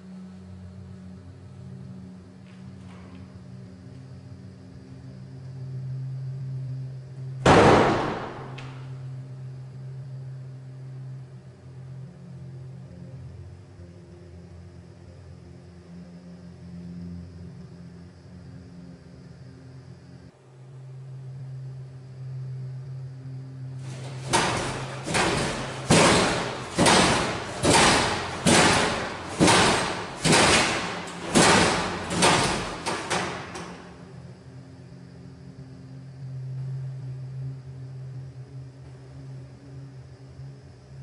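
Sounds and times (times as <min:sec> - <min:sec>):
loud ringing bangs: 0:07.5 - 0:09.0, 0:23.8 - 0:34.1.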